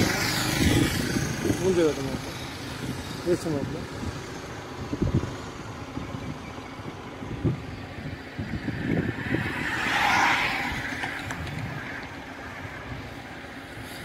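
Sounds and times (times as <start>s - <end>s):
motorbike road noise: 0.0s - 14.0s
wind buffeting microphone: 0.0s - 14.0s.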